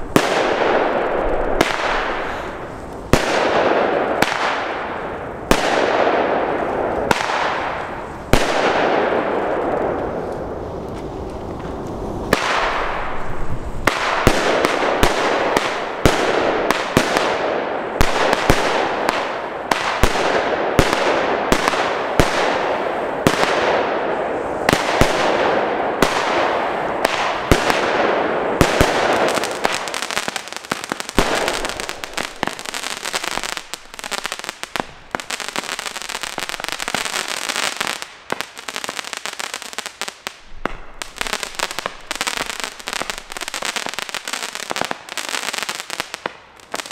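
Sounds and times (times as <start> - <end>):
firework hiss: 0.0 - 3.2
firework shots bursting: 0.0 - 10.0, 12.3 - 24.0, 24.6 - 46.9.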